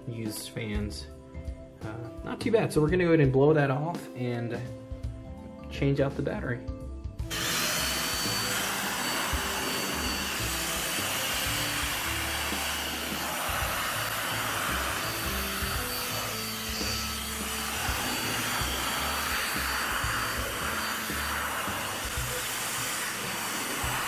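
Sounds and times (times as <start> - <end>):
background music with bass line: 0.0 - 8.7
electric air blower running: 7.3 - 24.0.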